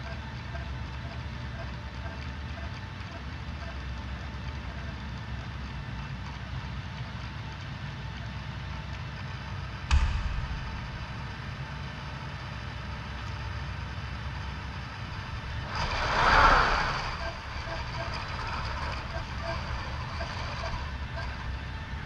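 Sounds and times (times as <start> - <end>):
sharp clunk: 9.9 - 11.9
low rumble: 9.9 - 22.0
hiss: 15.4 - 20.0.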